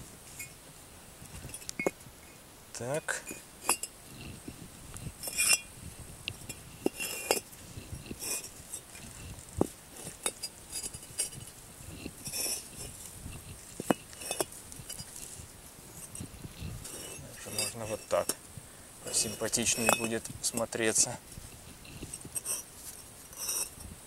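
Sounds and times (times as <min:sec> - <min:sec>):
bricks clinking and knocking: 0:01.4 - 0:02.0, 0:03.1 - 0:03.9, 0:05.2 - 0:05.7, 0:06.3 - 0:15.3, 0:16.0 - 0:18.4, 0:19.1 - 0:21.0, 0:21.9 - 0:22.7, 0:23.3 - 0:23.9
bricks scraping: 0:03.1 - 0:05.7, 0:06.3 - 0:18.4, 0:19.0 - 0:23.9.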